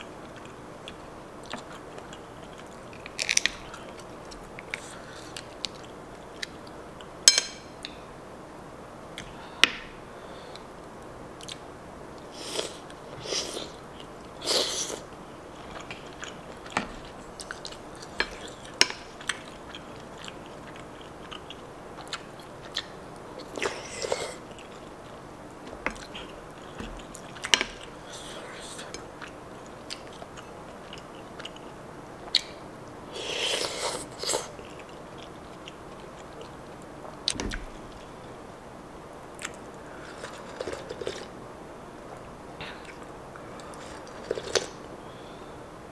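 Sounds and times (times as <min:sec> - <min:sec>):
wet chewing: 0:12.4 - 0:24.9.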